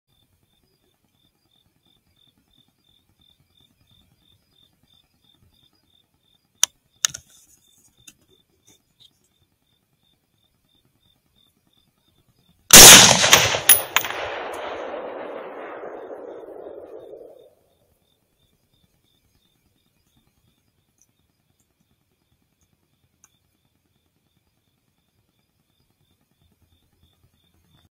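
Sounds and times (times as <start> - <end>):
sharp clicks: 6.6 - 7.3, 12.7 - 17.4
rifle shot with echo: 12.7 - 17.5.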